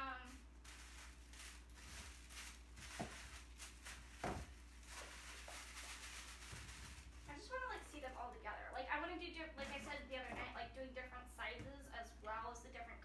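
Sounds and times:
low steady hum: 0.0s - 13.0s
tissue paper rustling: 0.2s - 8.3s, 9.6s - 10.4s.

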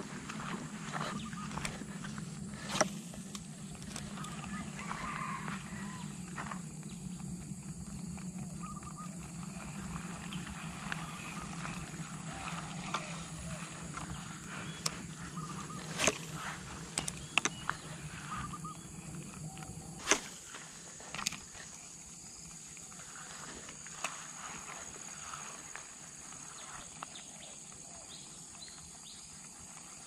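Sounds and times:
low steady rumble: 0.0s - 23.2s
high insect drone: 0.0s - 30.0s
faint bird chirps: 0.9s - 1.9s, 8.4s - 20.0s
sharp clicks: 16.9s - 17.8s.

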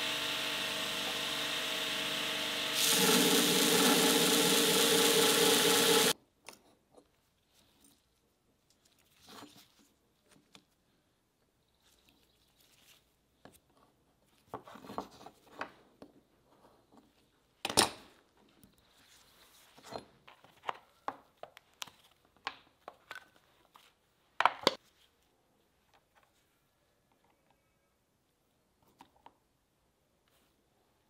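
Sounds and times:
belt grinder grinding steel: 0.0s - 6.2s.

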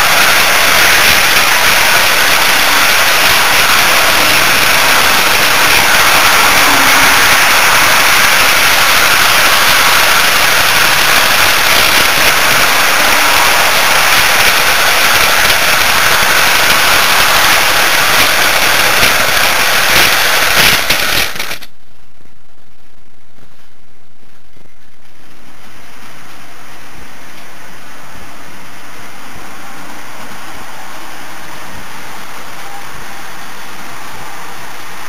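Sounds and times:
model train crackling rattle: 0.0s - 21.8s
steady hiss: 0.0s - 35.0s.

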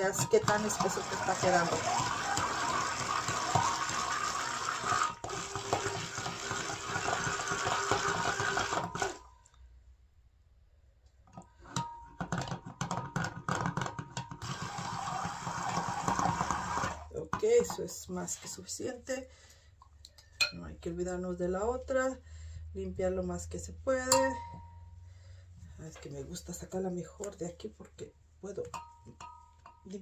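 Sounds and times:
stick blender running: 0.0s - 9.3s, 14.4s - 17.1s.

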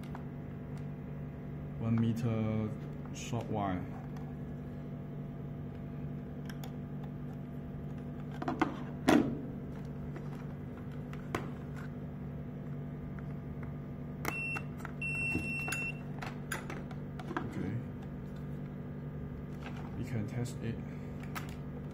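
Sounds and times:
steady low hum: 0.0s - 21.9s
intercom beeps: 14.3s - 16.0s.

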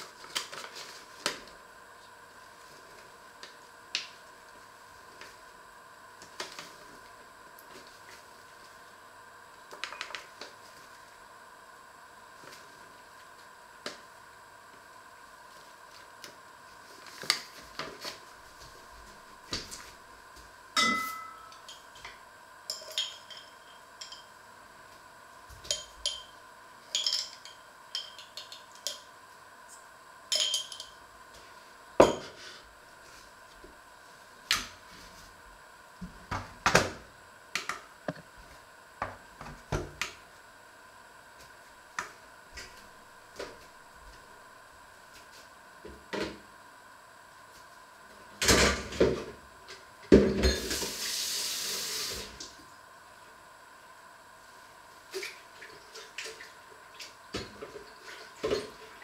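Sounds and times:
metal kitchenware clinking: 20.8s - 21.9s, 30.3s - 31.0s
metallic ring: 20.8s - 21.9s.

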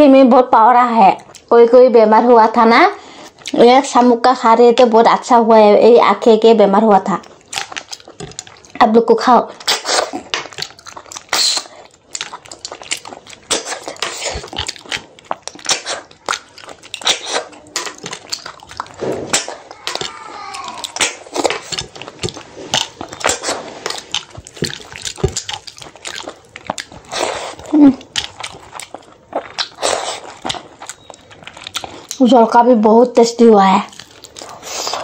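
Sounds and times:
lip smacking and chewing: 1.2s - 1.5s, 7.2s - 8.8s, 9.5s - 32.3s, 33.8s - 35.0s.

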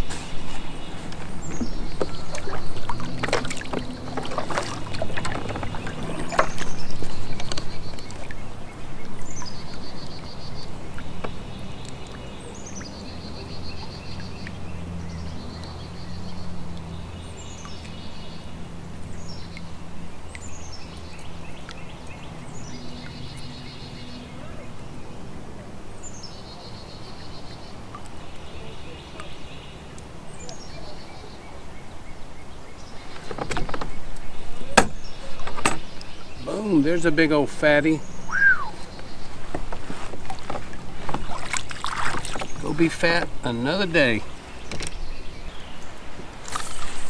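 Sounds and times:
paddle and tackle clattering: 0.0s - 8.4s, 33.1s - 38.0s, 38.8s - 45.0s
songbird singing with buzzy trill: 4.8s - 39.5s.

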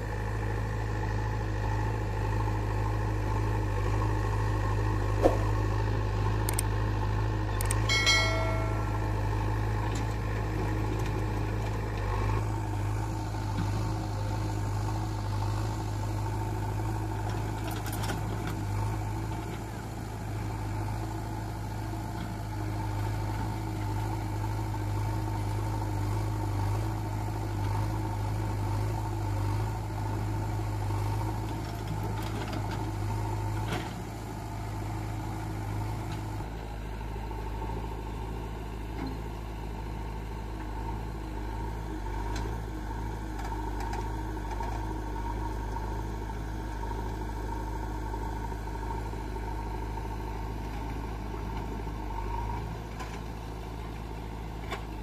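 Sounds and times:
diesel engines running: 0.0s - 55.0s
knock: 5.2s - 5.5s.

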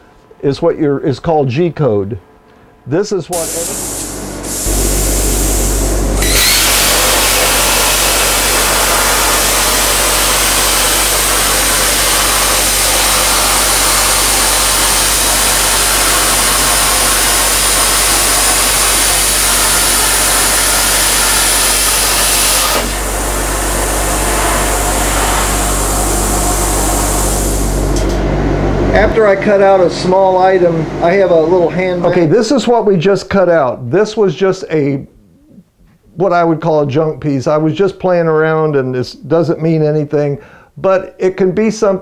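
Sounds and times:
plasma torch cutting metal: 3.4s - 27.8s.

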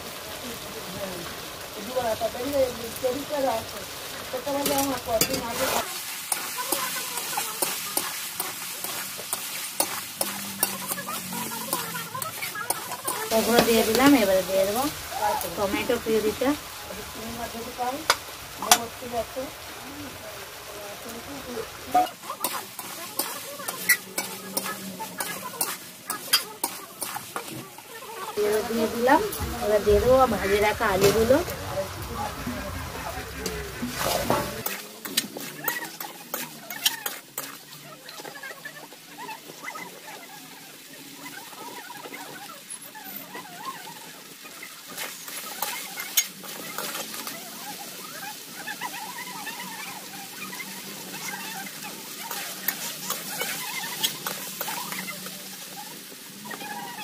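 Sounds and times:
frying sizzle: 0.0s - 57.0s
metal spatula scraping pan: 4.4s - 16.5s, 21.1s - 38.4s, 44.4s - 56.9s.

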